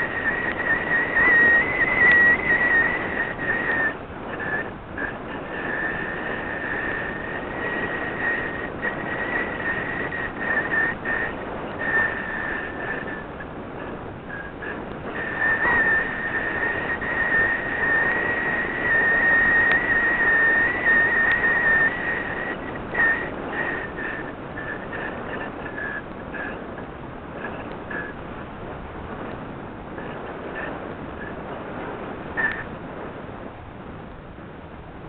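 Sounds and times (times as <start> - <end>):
high-pitched whistle: 0.0 - 13.4, 14.3 - 26.6, 32.4 - 32.7
air rushing over microphone: 0.0 - 35.0.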